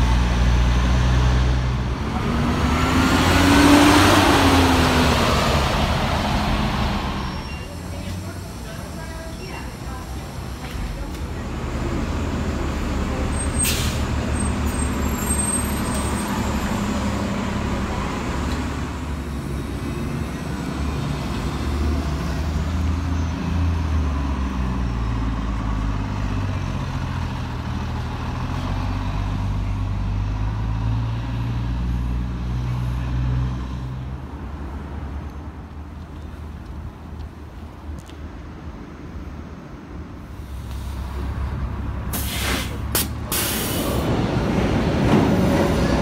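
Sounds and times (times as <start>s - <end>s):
bus engines pulling away: 0.0s - 46.0s
short high hiss: 42.1s - 44.0s.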